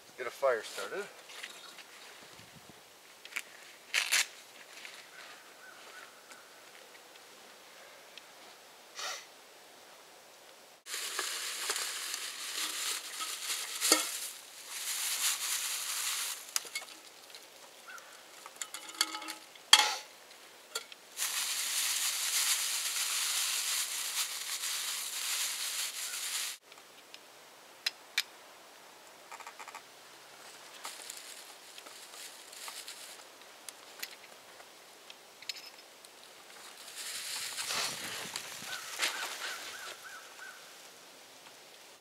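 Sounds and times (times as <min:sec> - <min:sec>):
dry grass rustling and crackling: 0:00.6 - 0:07.2, 0:10.9 - 0:26.7, 0:30.3 - 0:34.8, 0:36.0 - 0:41.9.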